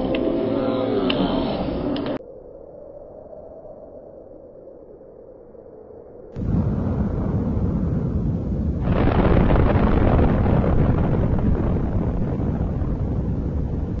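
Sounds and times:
explosion with deep rumble: 0:06.4 - 0:14.0.

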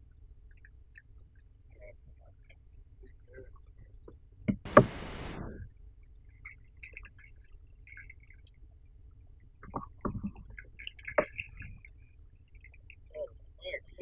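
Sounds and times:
soft knocks: 0:04.6 - 0:05.4.

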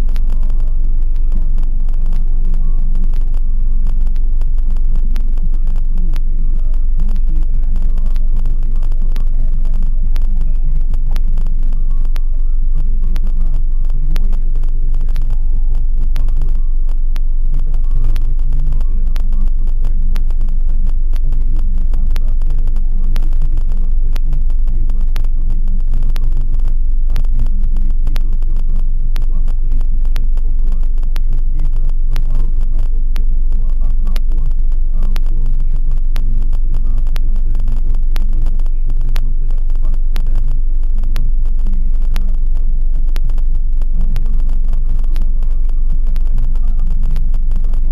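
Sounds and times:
engine and road noise rumble: 0:00.0 - 0:47.9
small clicks: 0:00.0 - 0:47.9.

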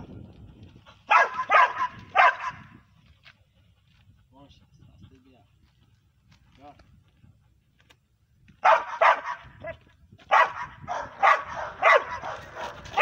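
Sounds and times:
dog barking aggressively: 0:01.1 - 0:02.7, 0:08.6 - 0:13.0.

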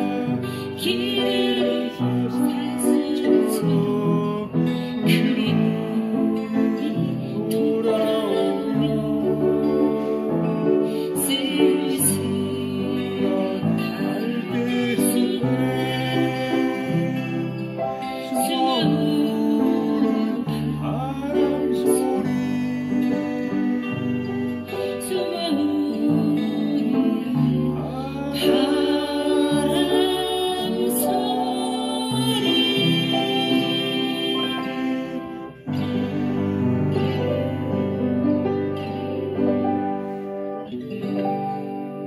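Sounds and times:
woman singing with vibrato: 0:00.0 - 0:37.2
upright piano playing: 0:00.0 - 0:42.0.

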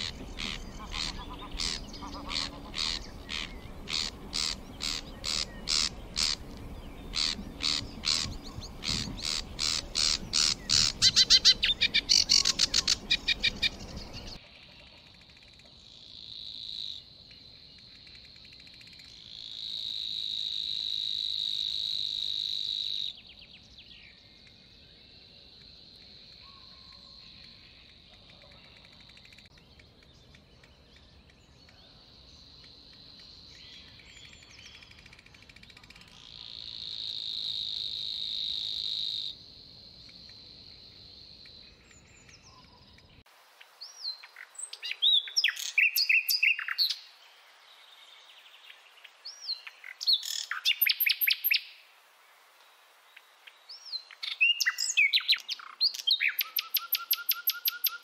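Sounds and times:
warbler reeling trill: 0:00.0 - 0:14.4.

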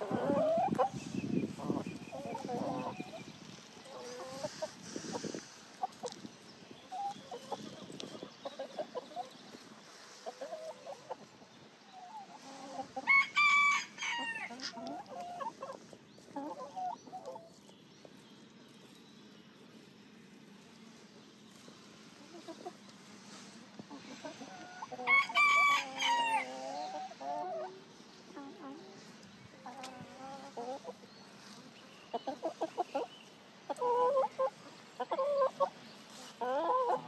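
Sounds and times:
chickens clucking: 0:00.0 - 0:37.0
rooster crowing: 0:25.0 - 0:26.5.

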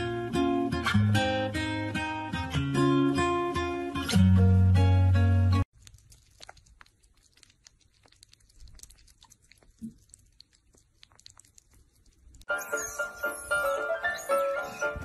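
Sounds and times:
strummed acoustic guitar: 0:00.0 - 0:05.6
animals licking and eating: 0:05.7 - 0:15.0.

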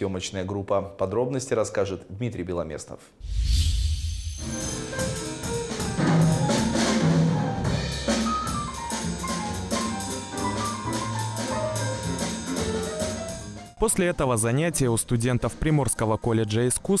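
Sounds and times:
brief whoosh: 0:03.2 - 0:05.1
drum kit and cymbals: 0:03.2 - 0:13.8
acoustic piano: 0:04.4 - 0:13.8.

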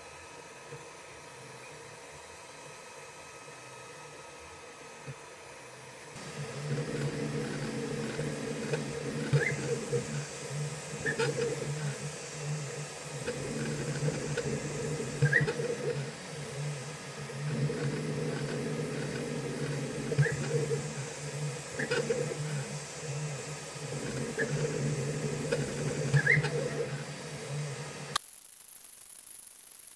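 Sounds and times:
faint steady hum: 0:02.7 - 0:29.9
printer stepper motors whirring: 0:06.2 - 0:28.2.

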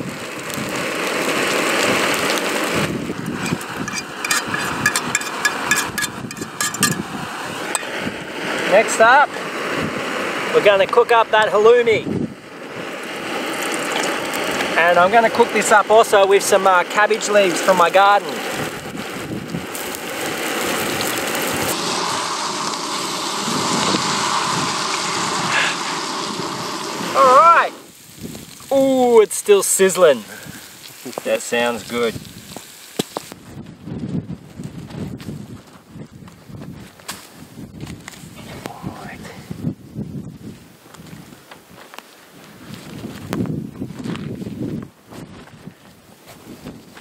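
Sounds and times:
meat sizzling in a pan: 0:00.0 - 0:10.6, 0:12.4 - 0:33.4
clicks and scrapes in a pan: 0:03.4 - 0:07.0.

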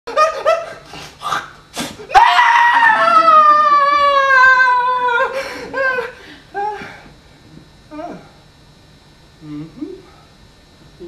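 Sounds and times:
person screaming: 0:02.1 - 0:05.4.

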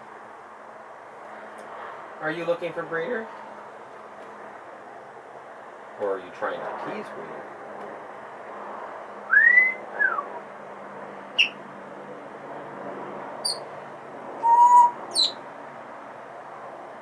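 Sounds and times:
parrot whistling: 0:09.3 - 0:10.2, 0:11.4 - 0:11.6, 0:13.4 - 0:13.6, 0:14.4 - 0:15.4
parrot chirping: 0:11.3 - 0:11.6, 0:13.4 - 0:13.7, 0:14.4 - 0:15.4.

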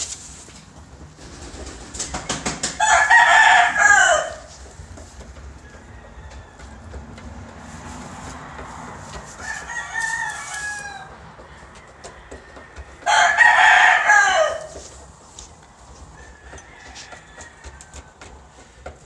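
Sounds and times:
rooster crowing: 0:02.8 - 0:04.6, 0:05.6 - 0:07.3, 0:09.2 - 0:14.9, 0:16.1 - 0:18.3.

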